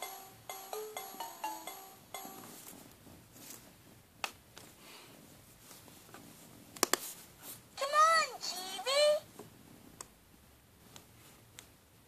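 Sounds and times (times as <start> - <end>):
toy electronic tune: 0.0 - 2.6.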